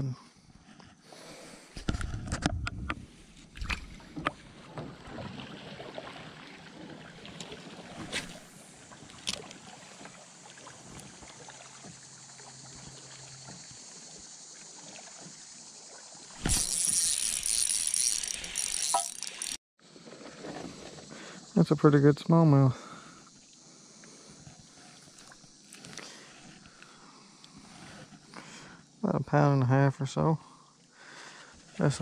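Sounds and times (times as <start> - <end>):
fishing reel whirring: 16.4 - 19.6.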